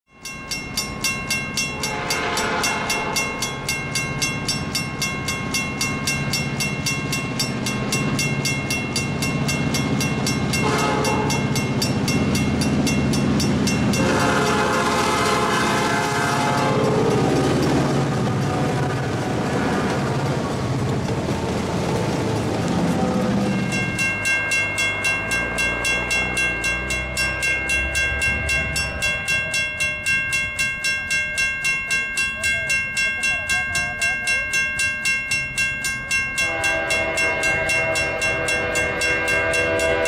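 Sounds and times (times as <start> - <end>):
railroad crossing bell ringing: 0.1 - 20.5, 22.8 - 40.0
locomotive horn blasts: 1.8 - 3.4, 10.5 - 11.6, 13.9 - 17.3, 36.4 - 40.0.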